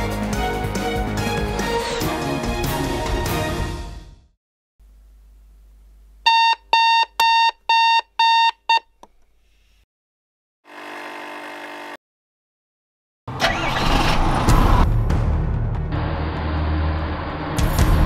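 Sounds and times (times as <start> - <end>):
alarm clock beeping: 6.3 - 8.8
car engine starting: 13.3 - 14.8.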